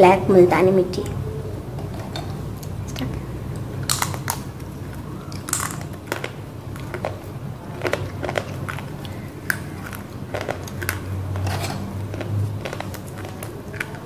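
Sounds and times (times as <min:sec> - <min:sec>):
clay crunching as bitten: 0:05.3 - 0:11.1.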